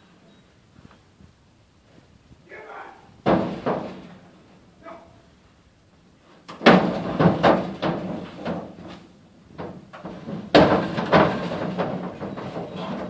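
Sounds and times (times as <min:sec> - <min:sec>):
hooves clattering in a trailer: 0:06.5 - 0:13.0.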